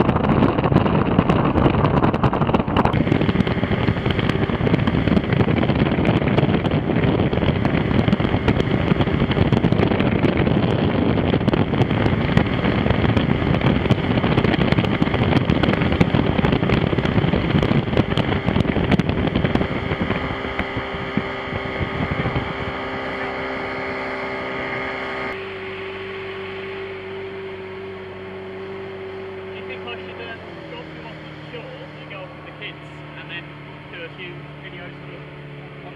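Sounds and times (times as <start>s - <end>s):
boat engine running: 0.0s - 35.9s
wind buffeting microphone: 0.0s - 35.9s.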